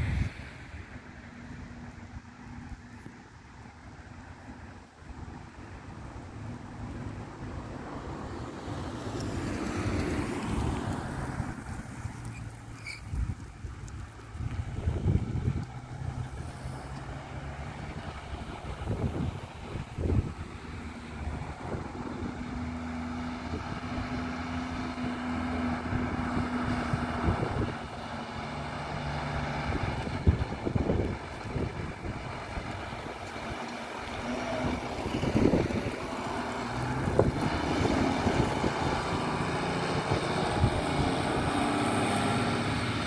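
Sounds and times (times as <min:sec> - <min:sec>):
tractor diesel engine droning: 0:09.4 - 0:43.0.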